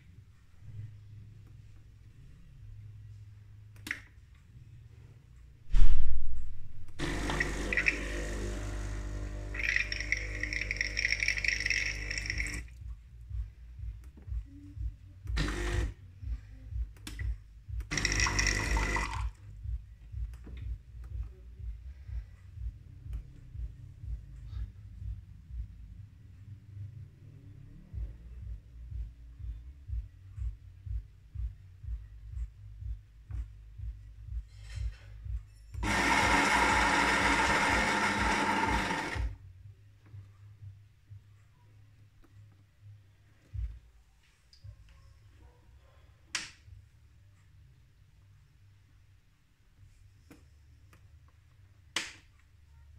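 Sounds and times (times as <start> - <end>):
soft low thumping: 5.6 - 7.0, 12.7 - 15.4, 16.0 - 18.0, 19.2 - 26.8, 27.9 - 35.8, 43.5 - 45.6
coffee grinder running: 7.0 - 12.6, 17.9 - 19.2, 35.8 - 39.3
espresso machine pump buzzing: 7.0 - 12.6, 15.4 - 15.9, 17.9 - 19.2, 35.8 - 39.3.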